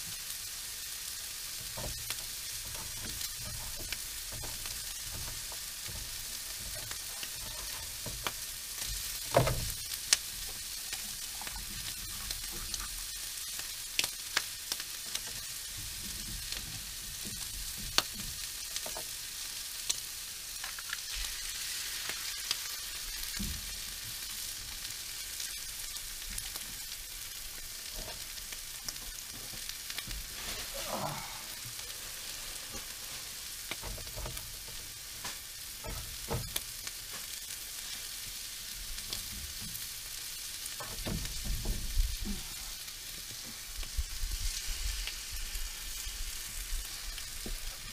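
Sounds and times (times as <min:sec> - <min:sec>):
food sizzling in a frying pan: 0:00.0 - 0:47.9
sharp clicks and knocks: 0:01.7 - 0:12.9, 0:40.8 - 0:42.0.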